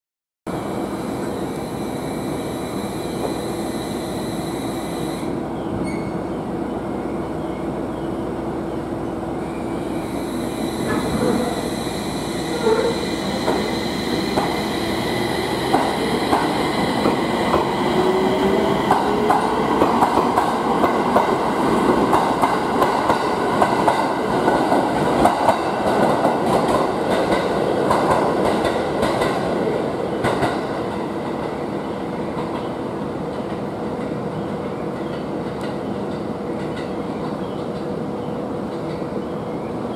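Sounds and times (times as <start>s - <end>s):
train motor whine rising: 0.5s - 5.4s, 9.5s - 20.0s
train running hum: 0.5s - 39.9s.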